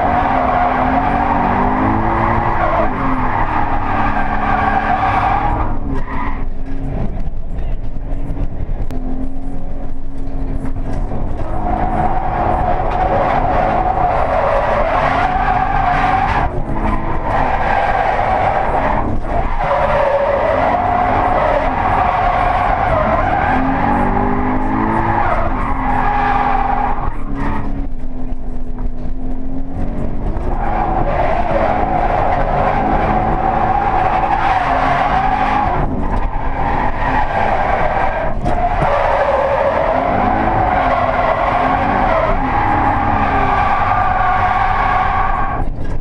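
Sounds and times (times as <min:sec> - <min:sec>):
car engine revving: 0:00.0 - 0:46.0
tyres squealing: 0:11.5 - 0:27.7, 0:30.5 - 0:45.6.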